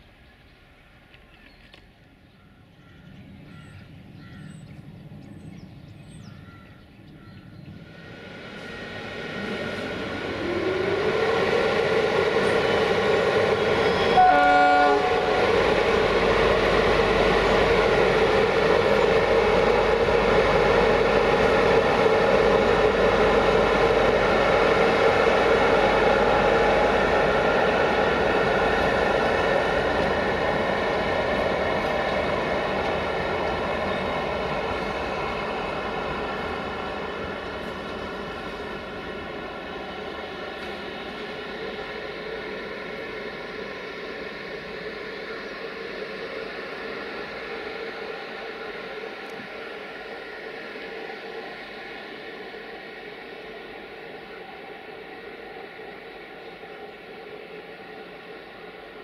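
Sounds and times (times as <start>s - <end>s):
electric locomotive whine: 0.0s - 59.0s
train horn toot: 13.8s - 15.6s.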